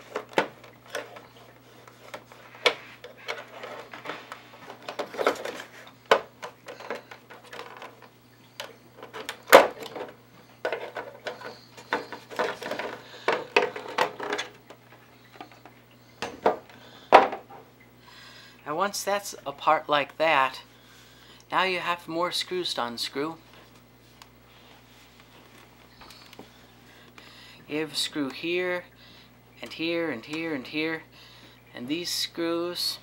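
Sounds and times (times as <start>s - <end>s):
plastic knocking and rattling: 0.0s - 17.6s.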